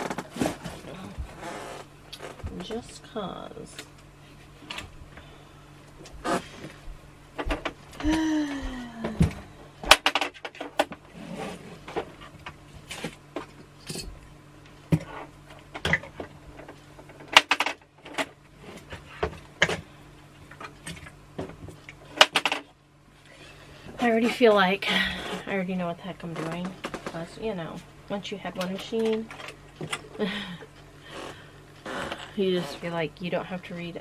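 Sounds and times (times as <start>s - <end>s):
faint low hum: 0.0s - 17.3s
person humming: 8.0s - 9.5s.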